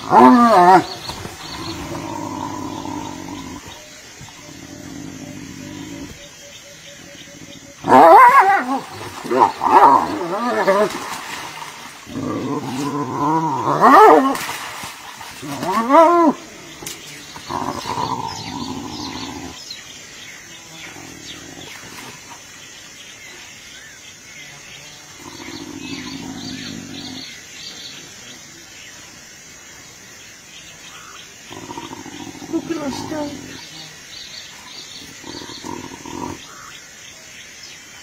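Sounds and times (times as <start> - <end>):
hyenas growling: 0.0 - 6.4, 7.3 - 14.5, 15.4 - 19.6, 25.2 - 27.4, 31.5 - 33.7, 34.5 - 36.6.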